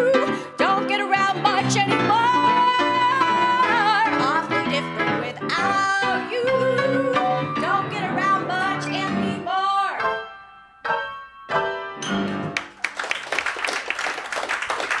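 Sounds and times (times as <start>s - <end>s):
jazz piano chords: 0.0s - 12.7s
audience applause: 12.6s - 15.0s.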